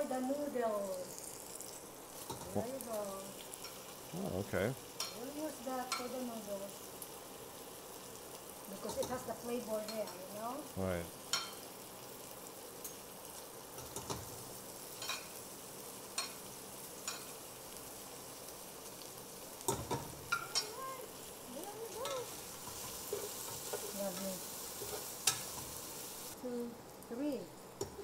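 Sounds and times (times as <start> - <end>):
light sizzle of frying: 0.0 - 28.0
spoon scraping pot: 22.6 - 24.0, 24.7 - 25.7.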